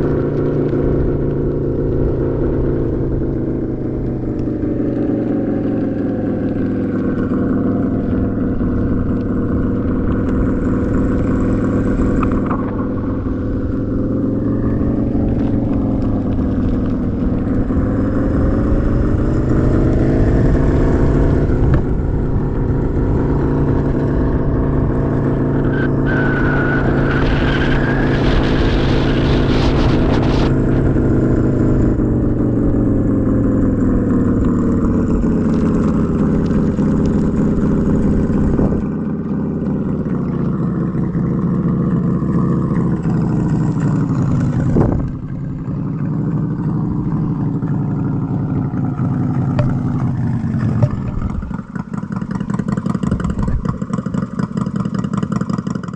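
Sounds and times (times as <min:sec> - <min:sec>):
simulated motorcycle engine sound: 0:00.0 - 0:55.9
hiss with high whistle: 0:25.9 - 0:30.6.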